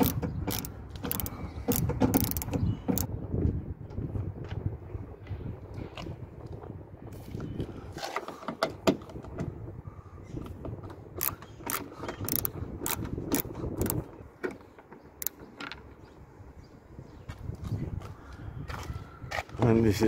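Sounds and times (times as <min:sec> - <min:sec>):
screwdriver clicking: 0:00.0 - 0:03.1, 0:11.2 - 0:14.0
screws backing out of plastic: 0:00.0 - 0:03.1.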